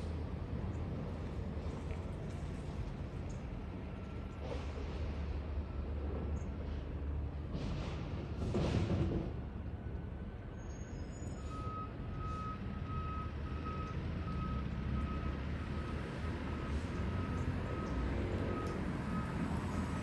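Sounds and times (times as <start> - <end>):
truck engine rumble: 0.0 - 20.0
truck backup alarm beeping: 10.3 - 20.0.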